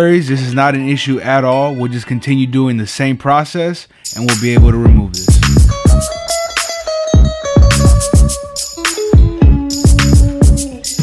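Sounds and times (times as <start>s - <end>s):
sharp hi-hat ticks: 4.0s - 6.9s, 7.7s - 11.0s
deep bass kicks: 4.6s - 6.1s, 9.2s - 10.6s.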